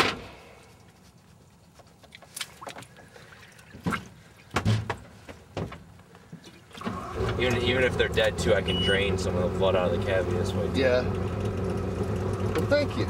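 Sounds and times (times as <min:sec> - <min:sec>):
splashes and knocks in water: 0:02.1 - 0:05.8.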